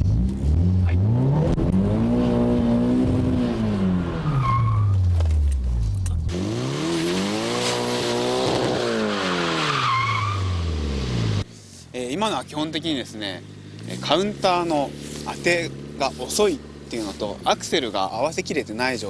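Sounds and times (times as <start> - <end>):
car engine revving: 0.0 - 11.5, 12.5 - 19.0
tyres squealing and skidding: 3.8 - 5.1, 6.9 - 10.8.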